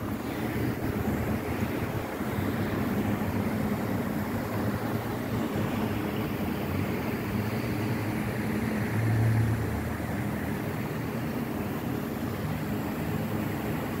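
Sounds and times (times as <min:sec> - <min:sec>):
mist fans whirring: 0:00.0 - 0:14.0.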